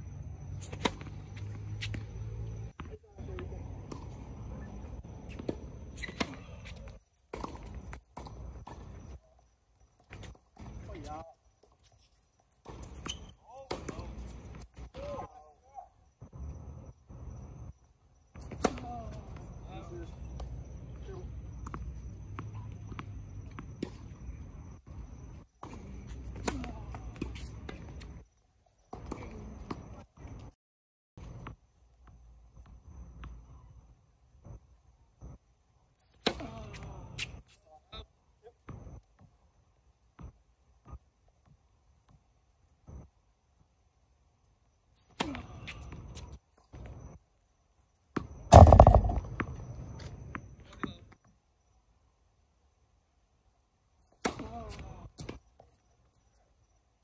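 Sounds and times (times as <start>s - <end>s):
tennis ball struck by rackets: 0.6s - 2.2s, 48.5s - 49.4s
tennis ball bouncing on court: 0.6s - 4.3s, 5.2s - 8.9s, 48.2s - 49.5s
camera knocked and shaken: 48.5s - 49.3s
tennis racket hitting ball: 48.5s - 49.3s.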